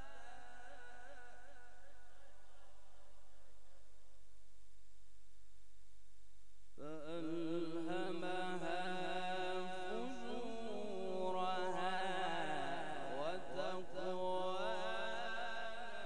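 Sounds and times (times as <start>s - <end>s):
man chanting into a microphone: 0.0s - 3.0s, 6.8s - 16.0s.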